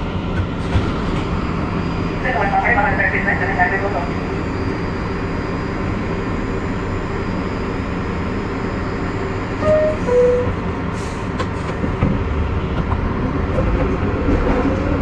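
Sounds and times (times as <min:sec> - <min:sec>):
subway car rumbling in tunnel: 0:00.0 - 0:15.0
brief falling tones: 0:09.6 - 0:10.6.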